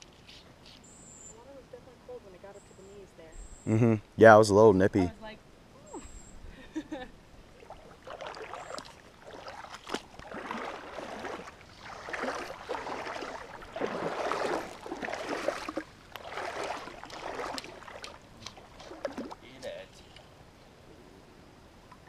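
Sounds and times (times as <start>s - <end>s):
water sloshing around wading legs: 7.4s - 19.8s.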